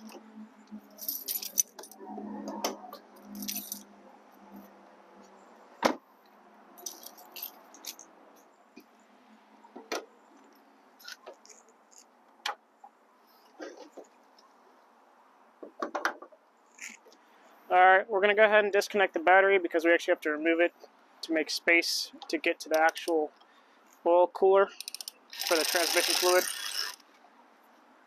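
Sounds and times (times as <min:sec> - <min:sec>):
car keys jangling: 0:00.9 - 0:02.0, 0:03.2 - 0:03.9, 0:06.8 - 0:08.1.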